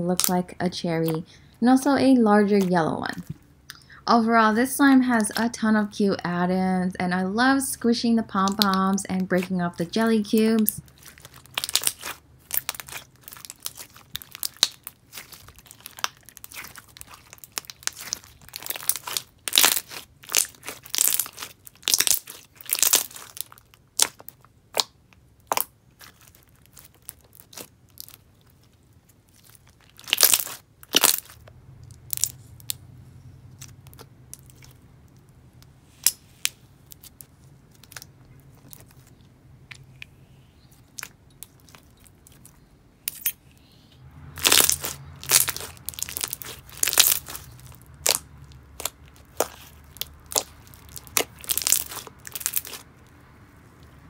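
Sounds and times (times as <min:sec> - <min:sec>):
crunchy clicks and pops: 0:10.3 - 0:32.8, 0:44.4 - 0:53.1
slime squished by hand: 0:10.6 - 0:31.4, 0:44.4 - 0:53.1.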